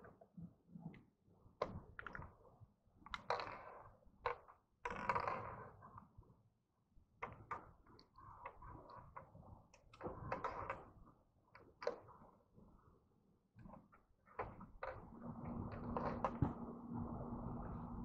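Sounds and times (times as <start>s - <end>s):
faint knocks and clicks: 13.6s - 16.7s.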